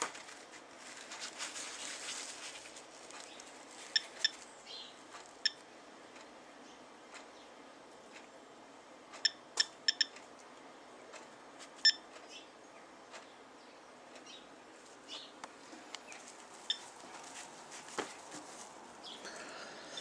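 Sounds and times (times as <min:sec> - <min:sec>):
dosimeter short high beeps: 0:09.2 - 0:10.1.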